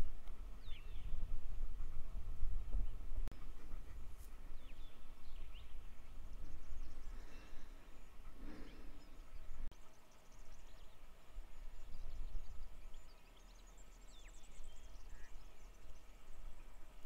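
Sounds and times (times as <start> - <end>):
wind rumbling on microphone: 0.0 - 9.7, 10.5 - 13.5
birds chirping faintly: 0.0 - 17.0.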